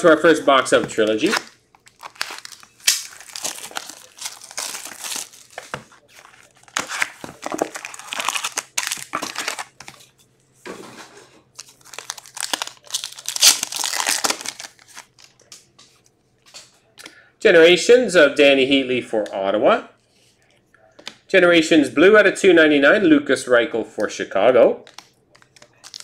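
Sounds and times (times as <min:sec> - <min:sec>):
card pack tearing: 0:01.1 - 0:10.0, 0:11.6 - 0:15.1
plastic wrap crinkling and tearing: 0:01.1 - 0:10.0, 0:11.5 - 0:15.4, 0:24.9 - 0:26.0.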